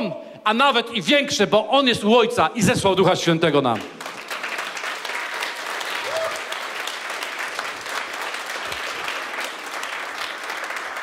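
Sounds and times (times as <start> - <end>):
crowd applauding: 3.8 - 11.0.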